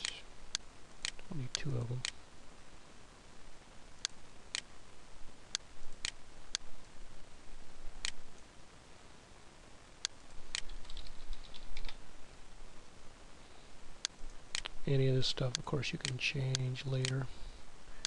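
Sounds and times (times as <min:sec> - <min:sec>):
computer mouse clicks: 0:10.0 - 0:12.0, 0:15.5 - 0:17.2.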